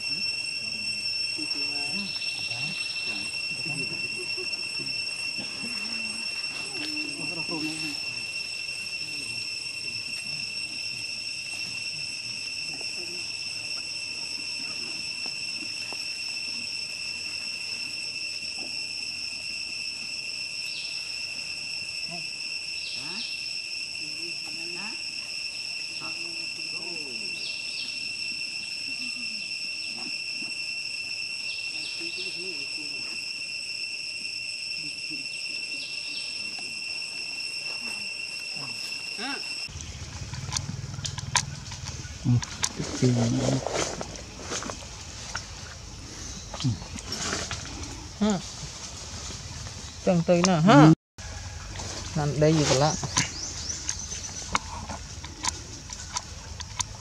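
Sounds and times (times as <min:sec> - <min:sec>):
insects singing: 0:00.0 - 0:57.0
scuffling and leaf rustle: 0:51.2 - 0:53.8.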